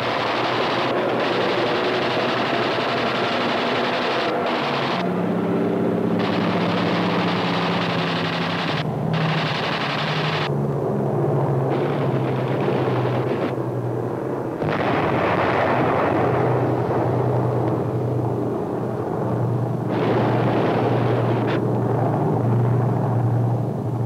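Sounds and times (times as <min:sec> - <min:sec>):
explosions: 0:00.0 - 0:05.1, 0:06.1 - 0:10.5, 0:11.7 - 0:13.5, 0:14.6 - 0:17.5, 0:19.9 - 0:22.9
rapid gunfire: 0:00.0 - 0:05.1, 0:06.0 - 0:10.5, 0:11.7 - 0:13.5
aircraft engine drone: 0:00.0 - 0:24.0.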